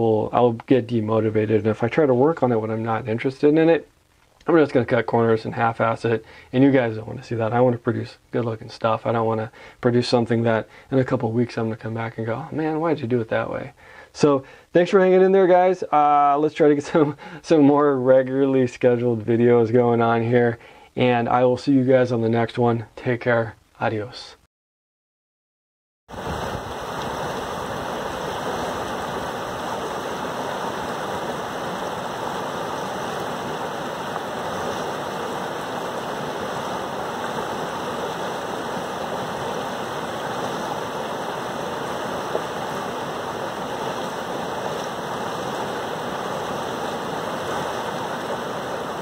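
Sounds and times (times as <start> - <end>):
river rushing over rapid: 26.1 - 49.0.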